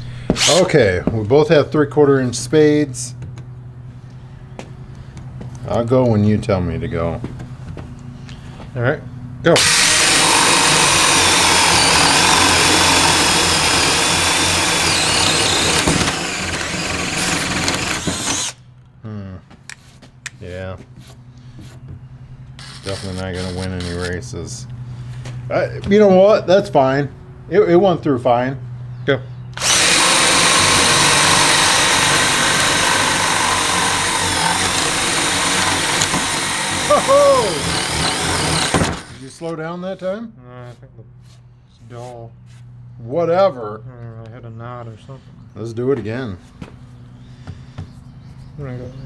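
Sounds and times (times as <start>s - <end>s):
cordless drills boring wood: 9.6s - 18.6s, 22.6s - 24.2s, 29.6s - 39.4s.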